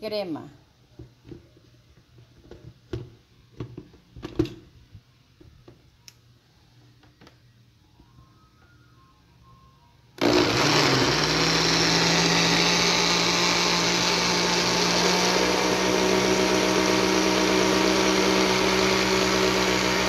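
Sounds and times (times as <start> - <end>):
electric blender motor running: 10.2 - 20.0.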